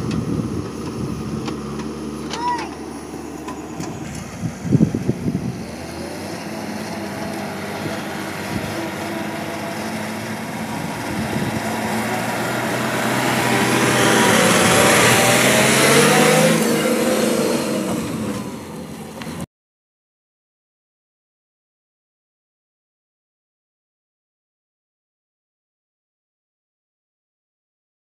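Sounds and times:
lorry diesel engine pulling away: 0.0 - 19.5.

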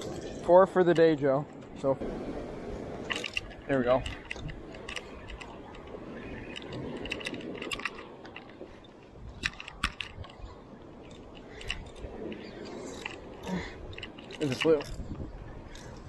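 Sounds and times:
fishing reel clicking and cranking: 3.1 - 10.4, 12.8 - 15.0.

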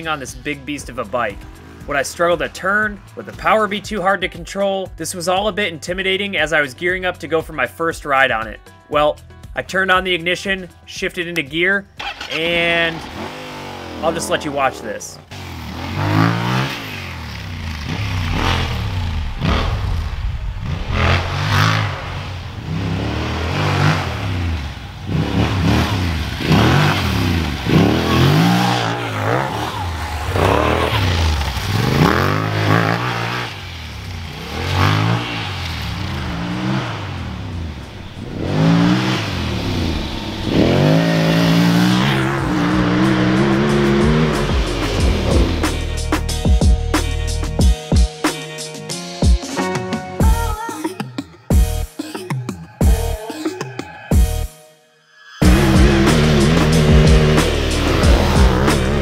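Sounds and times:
motorcycle engine revving: 0.9 - 2.2, 12.0 - 47.1, 55.4 - 59.0.

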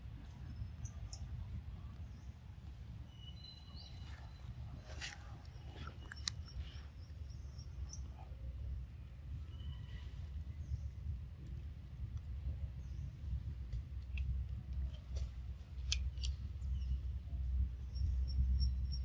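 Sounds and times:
low forest rumble: 0.0 - 19.0.

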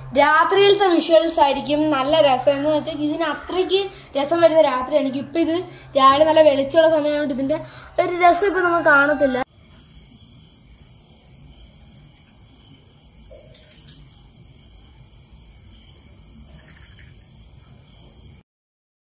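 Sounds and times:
crickets trilling: 7.3 - 18.4.

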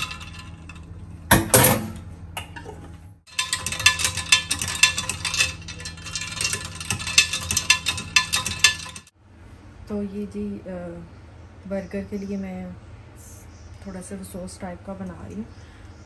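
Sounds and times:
ice cubes clinking in pitcher: 0.0 - 0.8, 3.3 - 9.1.

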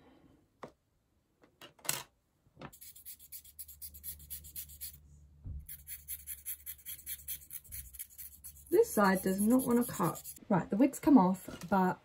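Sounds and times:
razor scraping through wig hair: 2.8 - 5.0, 5.7 - 10.4.

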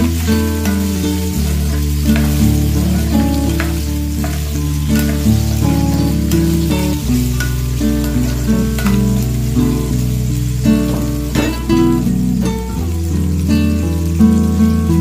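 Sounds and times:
spoon scraping pan: 0.0 - 9.8
food sizzling in oil: 0.0 - 15.0
instrumental music: 0.0 - 15.0.

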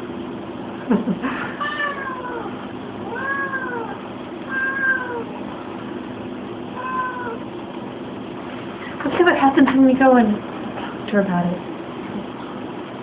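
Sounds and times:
cat meowing: 1.6 - 5.4, 6.8 - 7.5.

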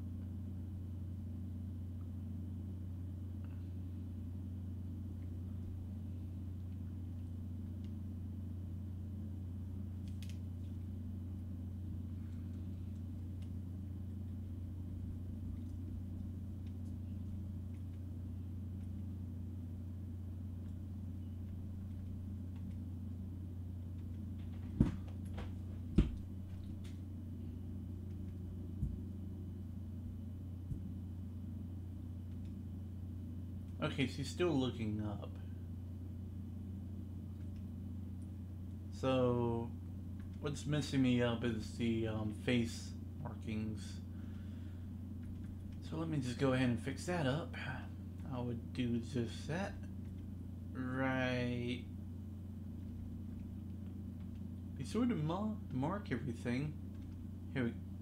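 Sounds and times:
low electrical hum: 0.0 - 58.0.

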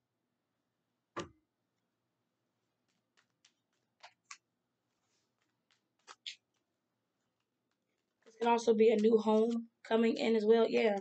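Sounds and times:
cards clicking and snapping: 2.8 - 4.5, 5.3 - 6.7.

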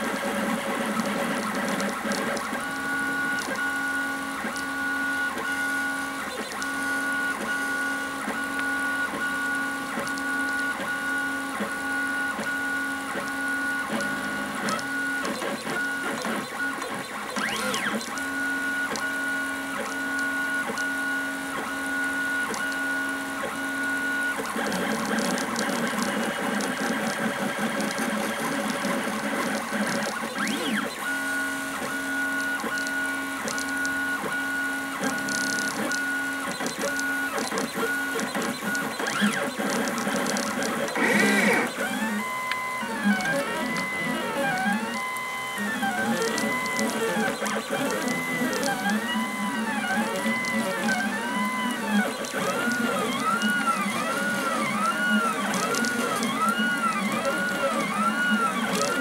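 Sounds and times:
stepper motors whining: 36.6 - 59.0.

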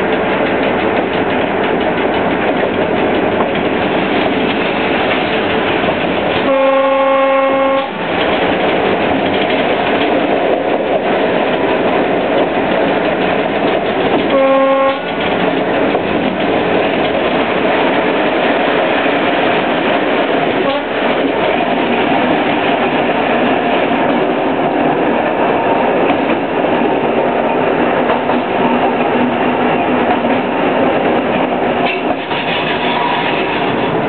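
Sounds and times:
diesel locomotive running: 0.0 - 34.0
locomotive horn blasts: 6.4 - 8.0, 14.3 - 15.1, 20.6 - 21.0.

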